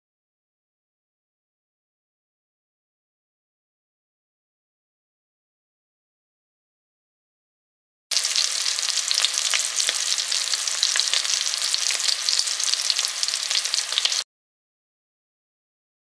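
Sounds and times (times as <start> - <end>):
bread sizzling in hot oil: 8.1 - 14.3.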